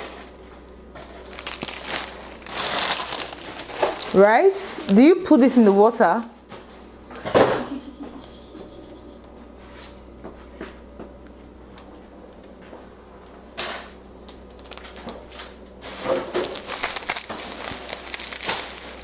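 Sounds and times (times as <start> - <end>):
packet crinkling and tearing: 1.2 - 5.0, 14.5 - 15.2, 16.0 - 19.0.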